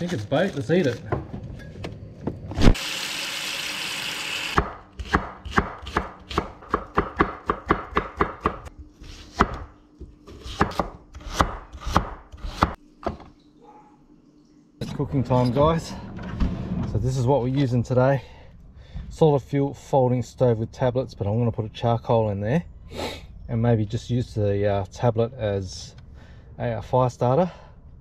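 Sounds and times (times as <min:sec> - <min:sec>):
knife chopping on wooden board: 0:04.6 - 0:08.7, 0:09.3 - 0:13.2.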